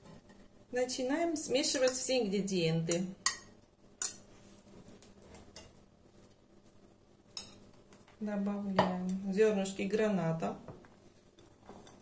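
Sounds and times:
fork scraping and stirring: 3.2s - 5.8s, 7.3s - 7.7s, 11.1s - 12.0s.

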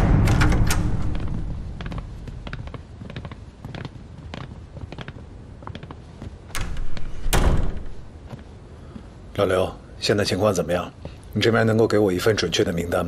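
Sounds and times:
door shutting with heavy thud: 0.0s - 2.0s, 6.5s - 8.1s
footsteps on hard floor: 1.1s - 7.2s.

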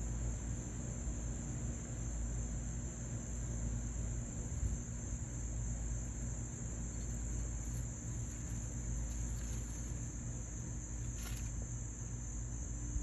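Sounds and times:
low background rumble: 3.9s - 13.0s
high-pitched insect drone: 6.6s - 12.8s.

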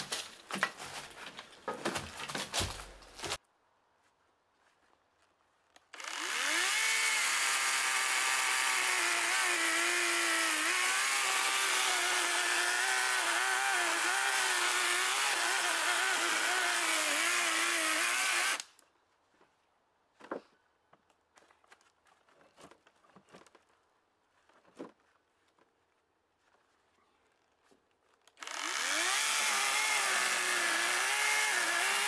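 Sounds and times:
electric chainsaw cutting wood: 5.9s - 18.7s, 28.4s - 32.0s.

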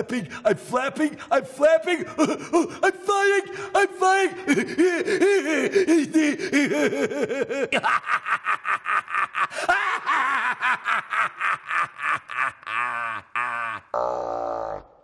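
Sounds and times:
man cackling in cartoon voice: 4.0s - 14.0s.

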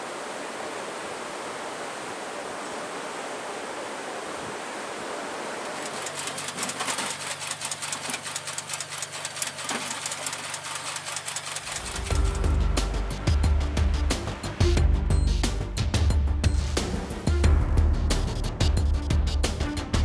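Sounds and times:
sea noise: 0.0s - 14.7s
wind: 0.0s - 15.7s
music: 11.8s - 20.0s.

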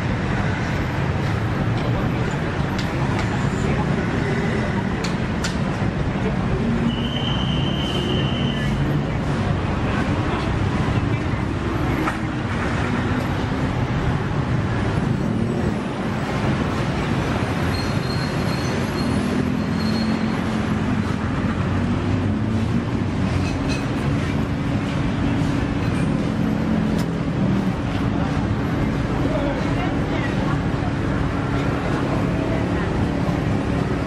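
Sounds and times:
street traffic noise: 0.0s - 34.0s.

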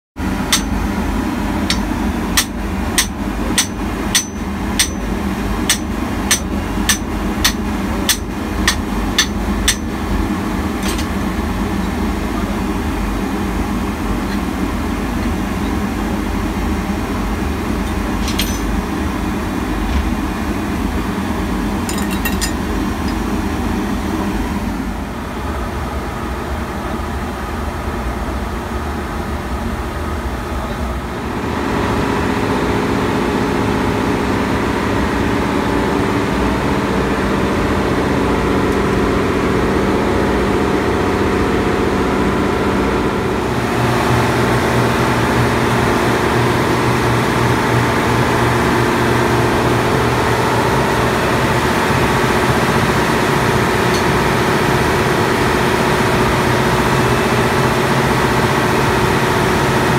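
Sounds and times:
machinery drone: 0.2s - 59.9s
hammer striking metal: 0.4s - 10.0s, 10.8s - 11.2s, 17.9s - 18.9s, 21.8s - 23.2s, 53.9s - 54.3s.

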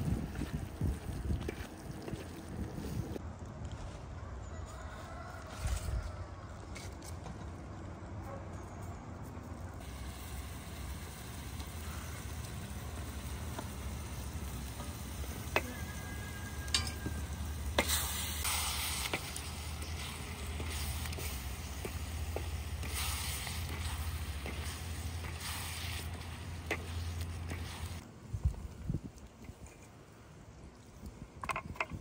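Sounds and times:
food sizzling in a pan: 9.8s - 28.0s.

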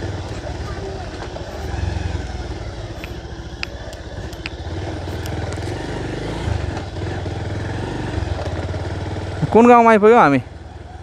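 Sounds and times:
motorcycle engine running: 0.0s - 11.0s
sharp rattle clicks: 2.8s - 5.8s.

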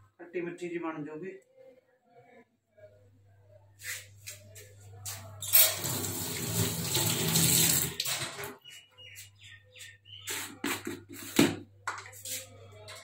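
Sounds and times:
tap running into sink: 5.6s - 8.5s.

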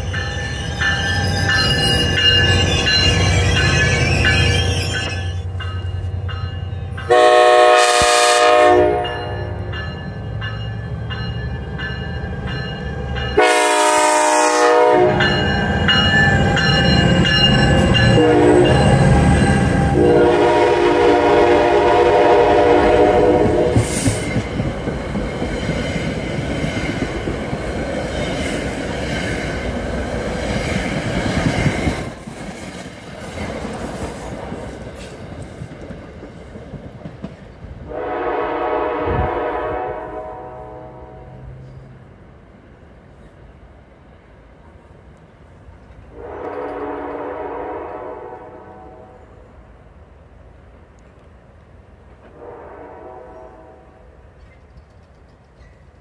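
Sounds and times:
train running past: 0.0s - 56.0s
train horn blasts: 7.0s - 9.8s, 13.3s - 15.6s, 17.8s - 24.0s, 37.9s - 41.9s, 46.1s - 49.4s, 52.3s - 54.2s.

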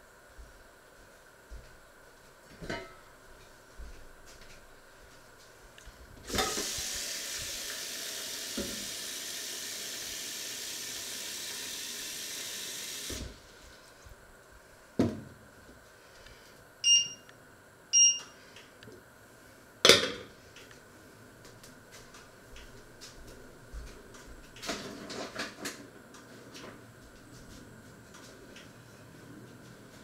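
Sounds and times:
short beeps: 16.8s - 17.3s, 18.0s - 18.3s.

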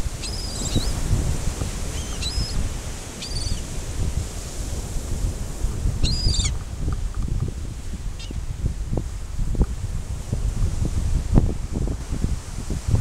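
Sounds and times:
wind buffeting microphone: 0.0s - 13.0s
gulls calling: 0.1s - 1.0s, 1.9s - 2.6s, 3.2s - 3.7s, 6.0s - 6.6s.

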